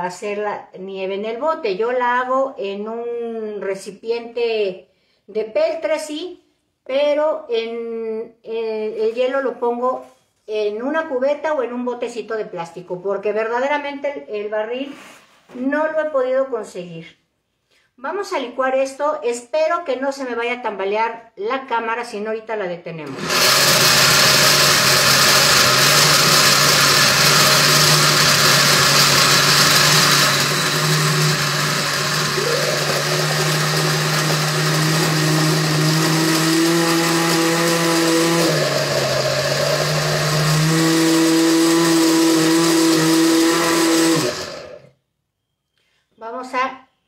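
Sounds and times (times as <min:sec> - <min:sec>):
blender grinding nuts: 0:23.1 - 0:44.9.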